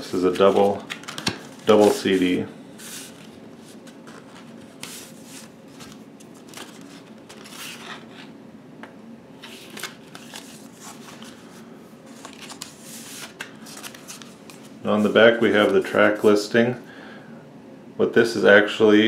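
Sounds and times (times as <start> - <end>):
cardboard and paper sleeve rustling: 0.1 - 8.3, 9.4 - 16.3.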